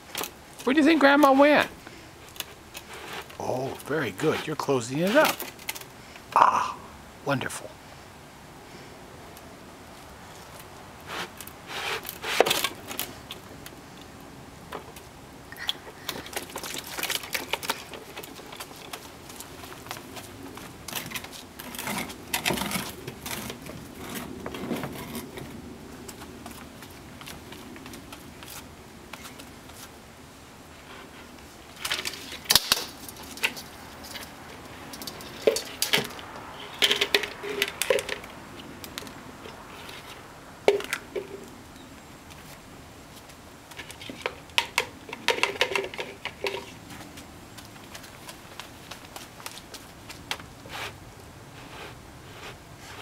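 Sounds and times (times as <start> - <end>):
plastic toys clattering: 2.3 - 5.9, 15.6 - 20.0, 20.6 - 25.5, 31.7 - 39.0, 43.8 - 46.8.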